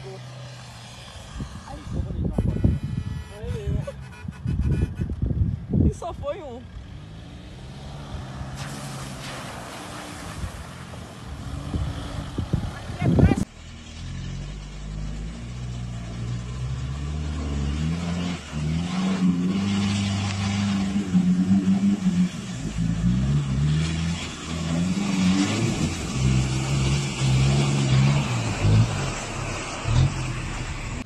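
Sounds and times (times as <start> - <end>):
truck engine revving: 6.6 - 31.0
water splashing around wheels: 6.9 - 31.0.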